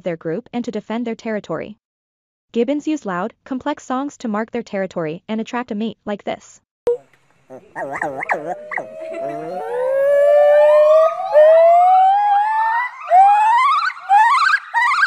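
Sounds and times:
gibbon singing: 6.9s - 15.0s.

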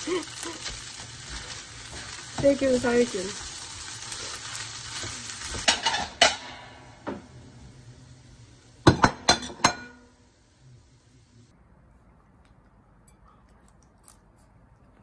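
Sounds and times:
food sizzling: 0.0s - 11.5s
utensils clinking on frying pan: 5.0s - 6.8s, 8.8s - 10.1s.

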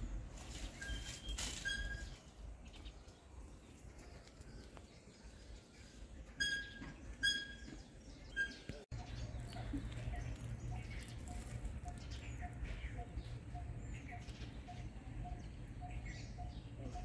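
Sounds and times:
bird chirps: 4.3s - 17.0s.

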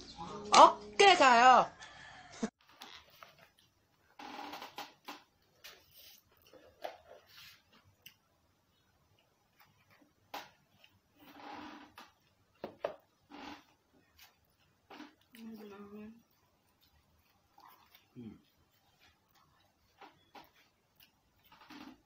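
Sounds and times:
slurping and chewing: 13.0s - 22.0s.

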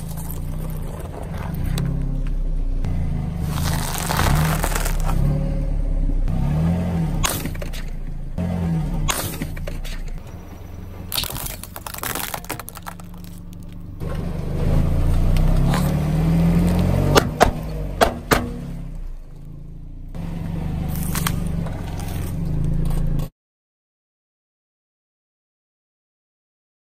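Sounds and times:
car engine running low: 0.0s - 23.3s
tyre crushing plastic: 3.4s - 5.2s, 11.0s - 13.9s
sharp snaps: 7.2s - 8.0s.

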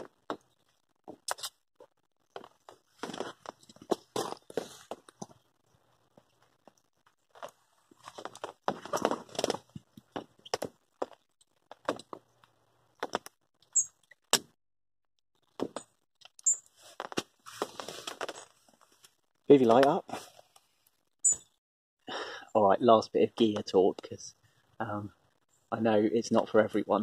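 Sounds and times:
rustling of clothing and fabric: 7.3s - 11.1s, 16.7s - 20.8s.

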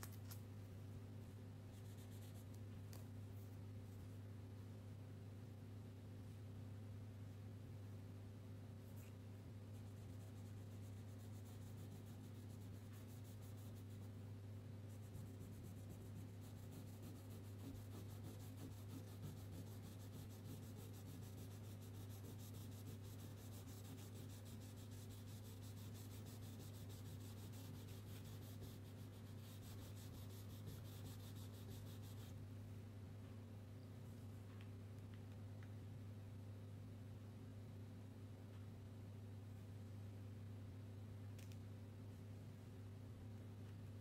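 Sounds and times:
steady low hum: 0.0s - 44.0s
crayon scratching on paper: 14.9s - 32.3s.

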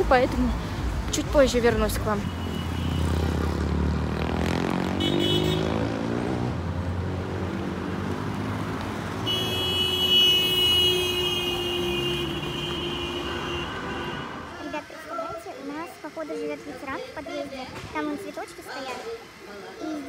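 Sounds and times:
cars driving past: 0.0s - 15.0s
engine accelerating: 2.9s - 9.2s
long car horn blast: 5.0s - 5.8s, 9.2s - 14.5s.

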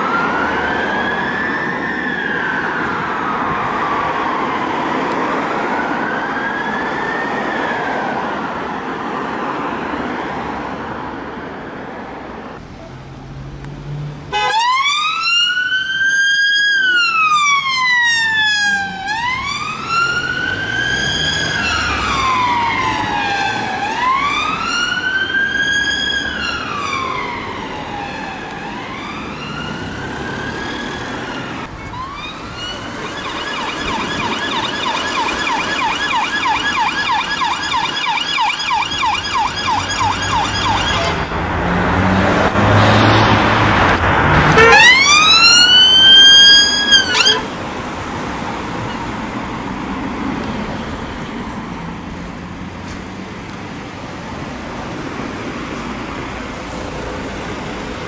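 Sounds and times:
siren wailing: 0.0s - 8.6s, 14.3s - 41.5s, 44.3s - 47.7s
road noise: 0.0s - 58.0s
siren fast yelp: 30.4s - 41.3s, 44.6s - 47.5s.

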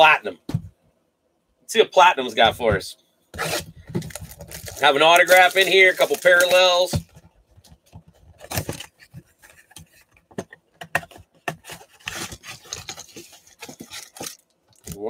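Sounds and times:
cardboard box scraping: 3.4s - 6.2s
cardboard flap rubbing and tearing: 3.4s - 6.5s.

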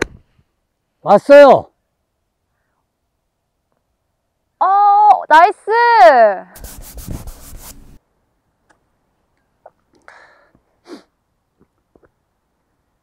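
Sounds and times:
short breathy sniff: 10.0s - 11.1s.

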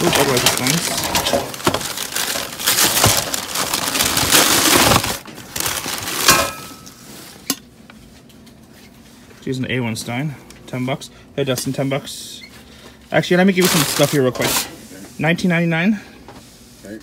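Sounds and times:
packing paper rustling: 0.0s - 6.5s, 13.5s - 14.6s.

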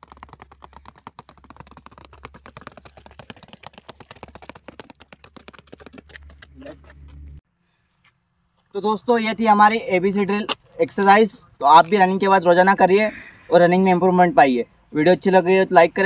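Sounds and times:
running shoes tapping on asphalt: 0.0s - 7.4s.

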